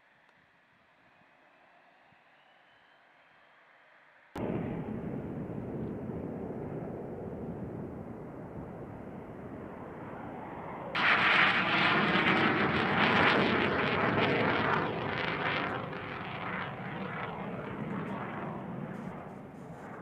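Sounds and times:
jet engine roar: 4.4 - 20.0.

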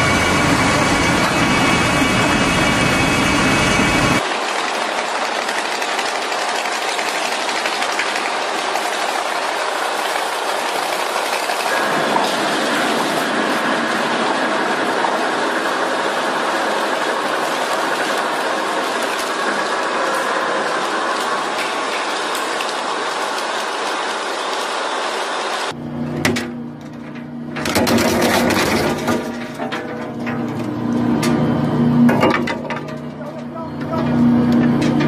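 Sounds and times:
crusher machine grinding: 0.0 - 25.0, 26.8 - 35.0.

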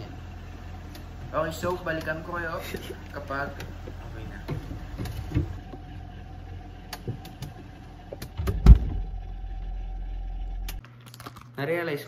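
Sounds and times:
steady low hum: 0.0 - 11.6
heavy thump: 8.4 - 9.1.

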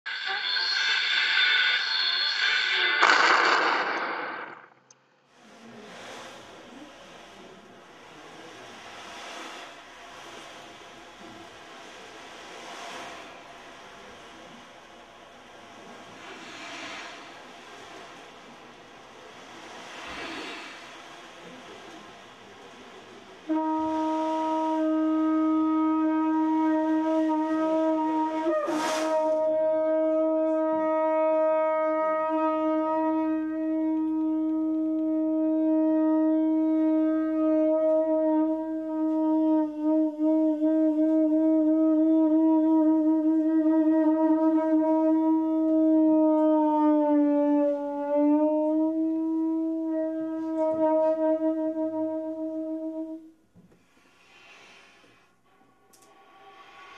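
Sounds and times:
brief rushing noise: 0.1 - 4.9
conch shell trumpet note: 23.4 - 53.4.

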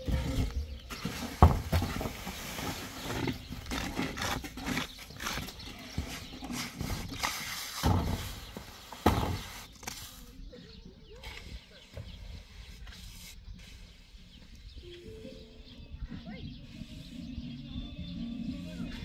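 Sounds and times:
trowel scraping wet mortar: 0.0 - 10.4, 11.2 - 14.6.

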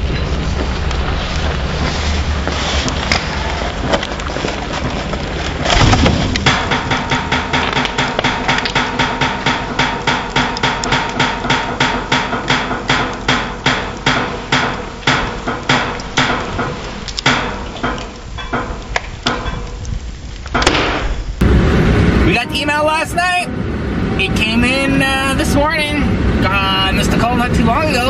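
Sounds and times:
rapid hammer-like strikes: 6.0 - 19.5.

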